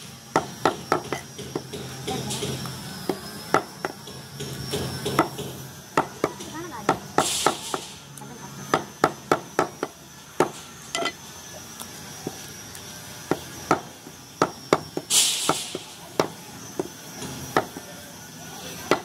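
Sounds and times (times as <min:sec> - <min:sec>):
meat cleaver chopping on wood: 0:00.4 - 0:07.8, 0:08.7 - 0:11.1.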